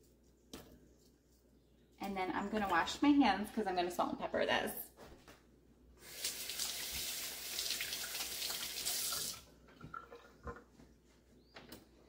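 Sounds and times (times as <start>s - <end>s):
faucet running: 6.0s - 9.5s.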